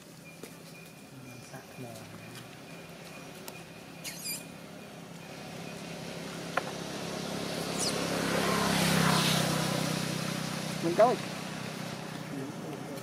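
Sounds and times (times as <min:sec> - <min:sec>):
vehicle engine hum: 0:00.0 - 0:13.0
baby monkey squeaking: 0:03.9 - 0:04.6, 0:07.7 - 0:08.0.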